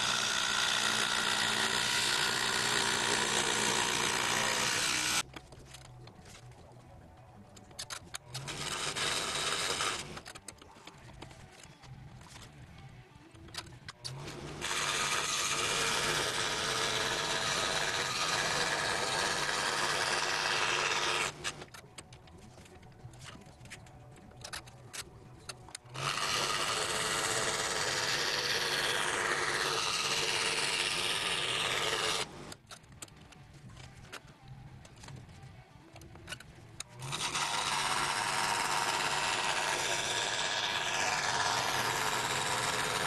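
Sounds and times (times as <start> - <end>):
scroll saw rasping: 0.0 - 5.2, 7.9 - 10.7, 14.0 - 22.0, 25.5 - 32.6, 36.3 - 43.0.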